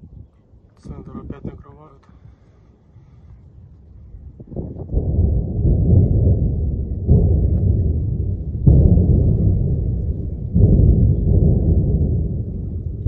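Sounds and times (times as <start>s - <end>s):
distant explosions: 4.1s - 13.0s.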